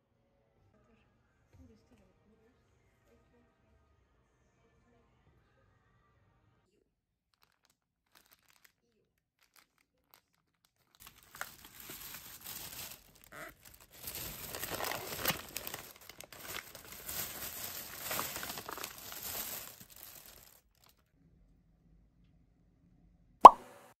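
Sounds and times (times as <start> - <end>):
plastic bag crinkling: 7.3 - 21.1.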